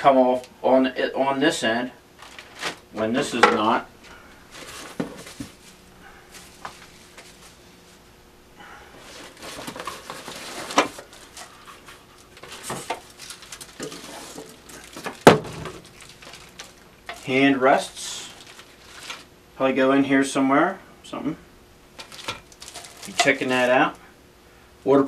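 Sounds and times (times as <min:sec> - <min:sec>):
packaging and cardboard rustling: 0:02.2 - 0:02.8, 0:04.5 - 0:07.5, 0:09.0 - 0:17.4, 0:18.2 - 0:19.3, 0:22.0 - 0:23.8.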